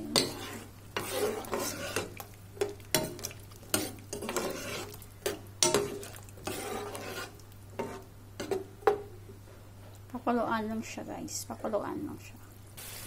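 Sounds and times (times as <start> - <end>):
sauce sizzling: 0.0 - 8.4, 12.8 - 13.0
spoon scraping a pan: 0.0 - 9.0.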